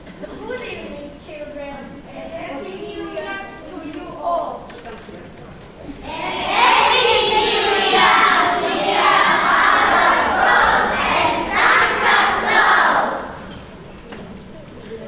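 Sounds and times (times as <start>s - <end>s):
children singing together: 6.0s - 13.8s.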